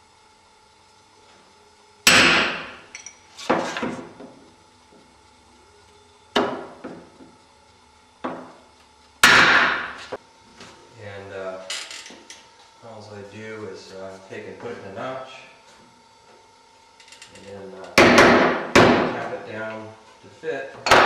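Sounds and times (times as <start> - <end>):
hammer knocking wood chisel: 18.0 - 19.2.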